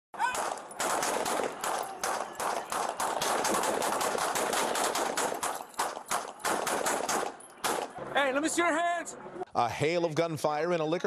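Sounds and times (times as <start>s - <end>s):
rapid handgun fire: 0.3s - 8.0s.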